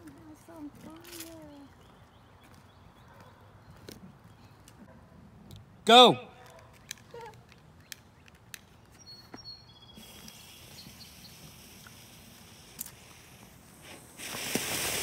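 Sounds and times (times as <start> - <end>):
firework fuse hissing: 10.0 - 15.0.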